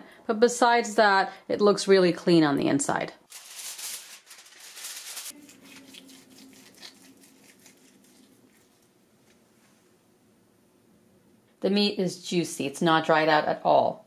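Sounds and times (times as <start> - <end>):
chicken skin crackling: 3.3 - 9.4.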